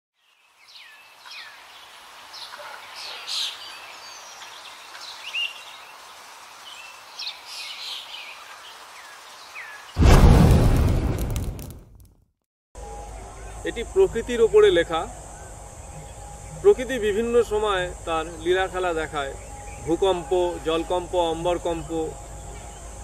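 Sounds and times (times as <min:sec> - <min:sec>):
steady outdoor hiss: 0:00.2 - 0:11.7, 0:12.8 - 0:23.0
loud boom: 0:10.0 - 0:12.0.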